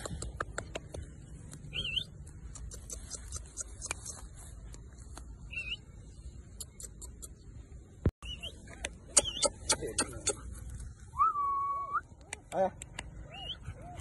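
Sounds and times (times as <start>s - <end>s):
puppies rustling through grass: 0.8s - 6.6s.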